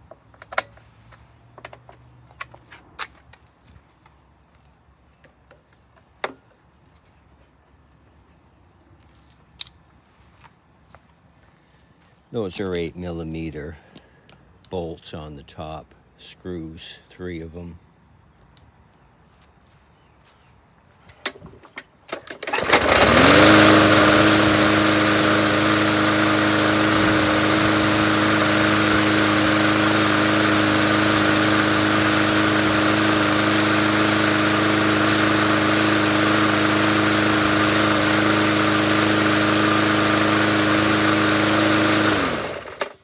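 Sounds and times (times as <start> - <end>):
lawn mower engine running: 21.2 - 43.0.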